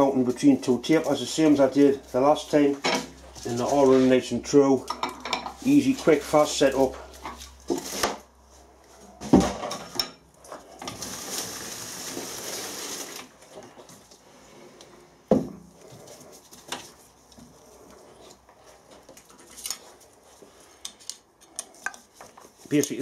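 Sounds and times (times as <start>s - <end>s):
steel tools clanking: 22.7s - 23.0s.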